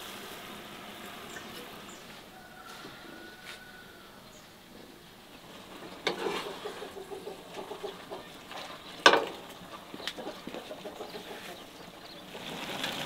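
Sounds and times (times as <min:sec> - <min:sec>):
chicken clucking: 0:06.2 - 0:09.0, 0:09.6 - 0:12.0.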